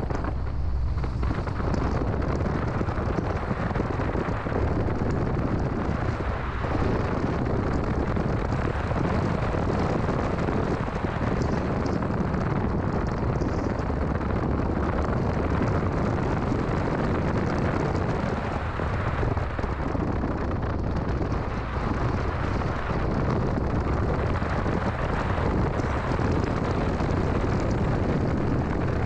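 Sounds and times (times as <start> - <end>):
car engine and road noise: 0.0 - 29.0.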